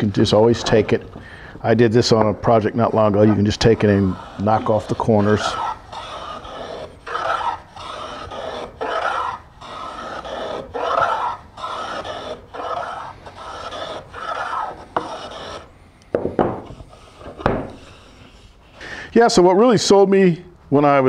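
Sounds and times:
plane scraping wood: 1.7s - 15.7s, 16.4s - 18.5s.

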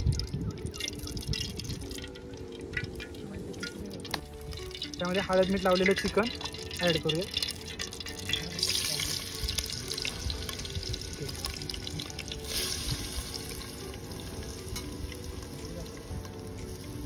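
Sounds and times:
chicken sizzling in hot oil: 0.0s - 17.0s.

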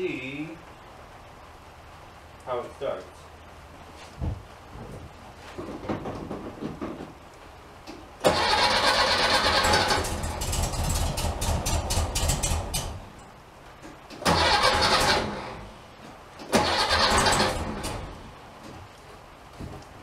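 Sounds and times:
car engine cranking on starter: 8.2s - 13.0s, 14.2s - 15.7s, 16.4s - 18.2s.

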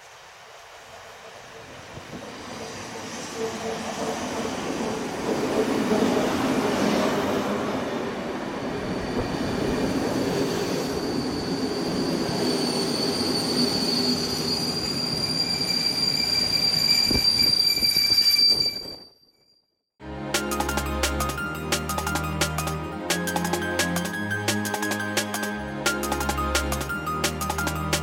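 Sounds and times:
high-pitched squeal: 8.7s - 19.5s.

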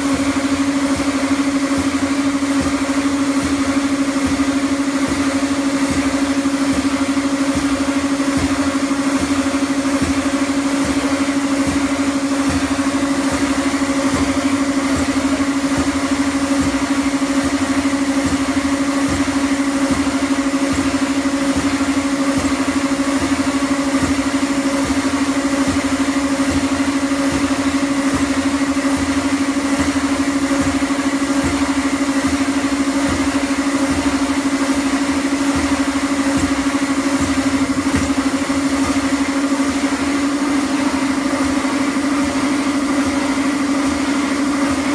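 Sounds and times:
escalator mechanical hum: 0.0s - 44.9s.

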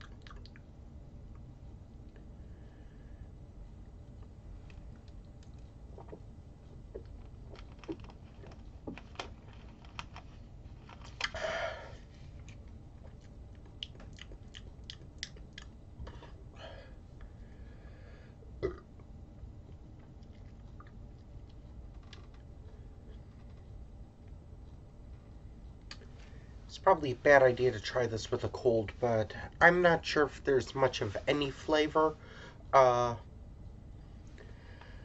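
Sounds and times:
lip smacks and tongue clicks: 0.0s - 0.6s, 12.4s - 15.8s, 25.9s - 26.1s.

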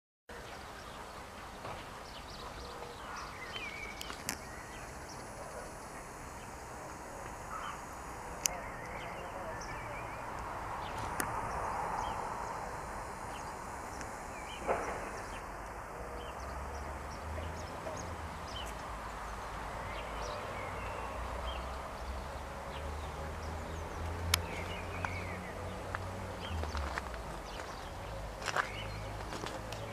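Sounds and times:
bird chirps: 2.0s - 15.5s
sharp clicks: 3.5s - 8.6s, 10.3s - 11.5s, 12.8s - 15.8s.

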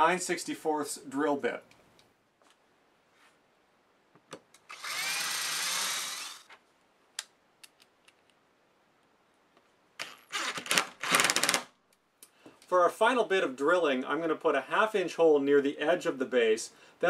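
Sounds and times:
cordless drill boring into wood: 4.7s - 6.5s, 10.0s - 11.6s.

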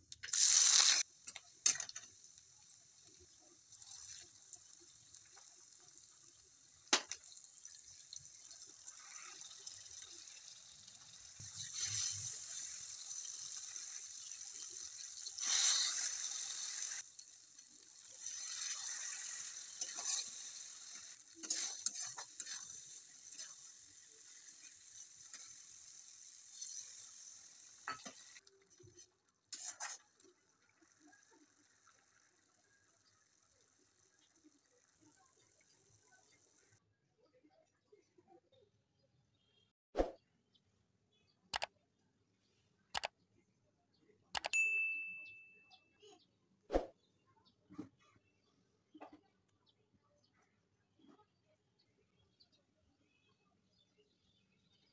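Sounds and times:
onions sizzling in hot oil: 0.2s - 28.4s
metal spatula scraping pan: 18.2s - 23.7s, 29.6s - 30.0s.

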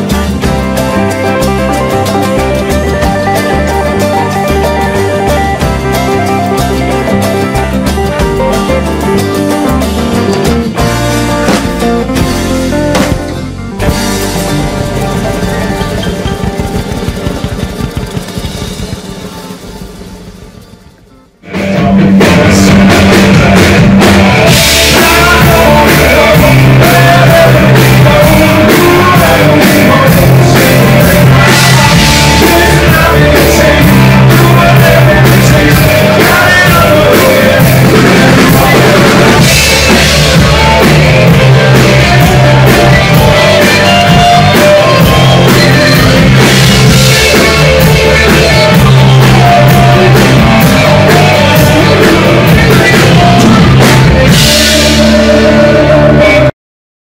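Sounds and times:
bass guitar: 0.0s - 56.5s
drum kit: 0.0s - 56.5s
electric guitars: 0.0s - 56.5s
man singing: 21.5s - 56.5s.

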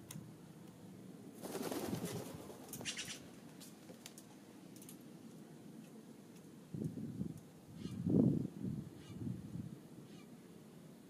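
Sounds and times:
bird wings flapping: 1.4s - 4.2s.

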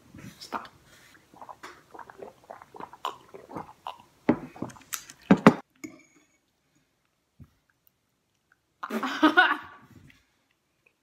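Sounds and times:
water gulping: 0.2s - 5.4s.

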